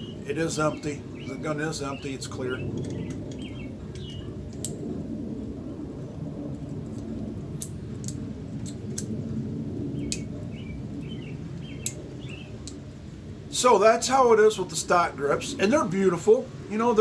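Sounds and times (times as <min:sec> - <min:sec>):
bird chirps: 0:00.0 - 0:04.4, 0:10.0 - 0:12.6
low rumble: 0:00.0 - 0:13.5.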